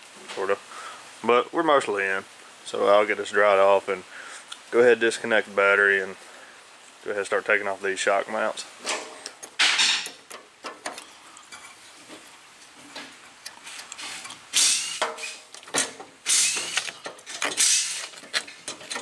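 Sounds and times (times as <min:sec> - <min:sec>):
ratcheting wrench clicking: 0:13.8 - 0:19.0.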